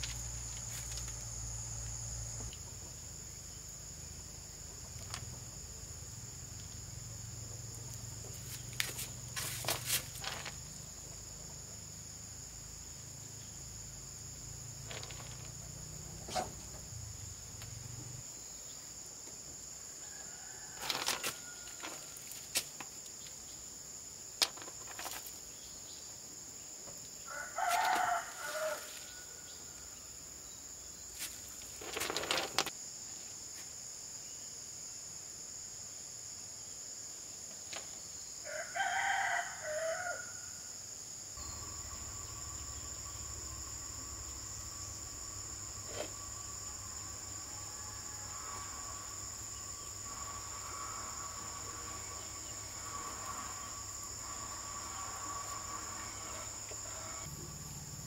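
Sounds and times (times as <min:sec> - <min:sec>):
high insect drone: 0:00.0 - 0:58.0
rooster crowing: 0:20.0 - 0:22.2, 0:27.3 - 0:29.9, 0:38.4 - 0:40.6, 0:46.4 - 0:57.3.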